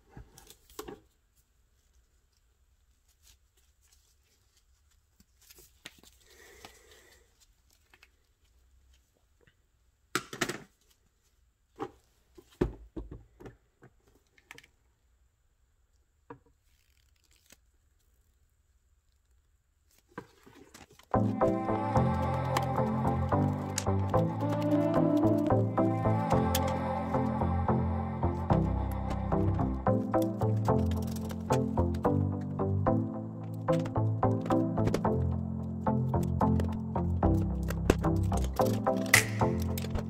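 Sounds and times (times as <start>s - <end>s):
gloved hands rubbing and scraping: 1.2s - 9.1s, 16.6s - 18.3s, 19.9s - 32.4s
background music: 21.1s - 40.0s.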